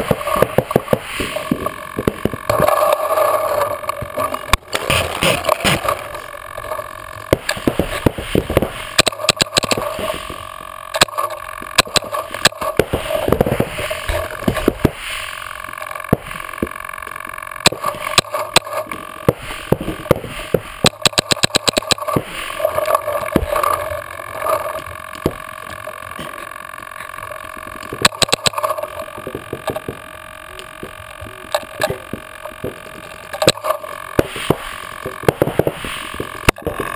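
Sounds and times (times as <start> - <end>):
steady hum: 0.0 - 36.9
paintball marker shots: 20.8 - 22.2.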